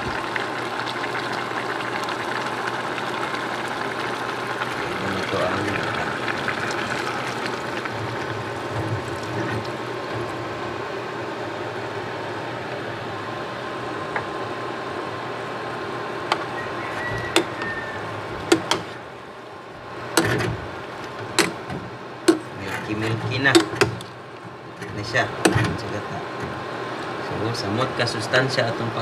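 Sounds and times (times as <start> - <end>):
coconut milk pouring into pot: 0.0 - 10.0.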